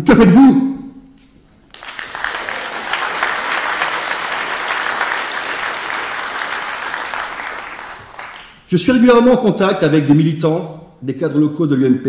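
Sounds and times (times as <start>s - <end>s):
audience applauding: 1.7s - 8.7s.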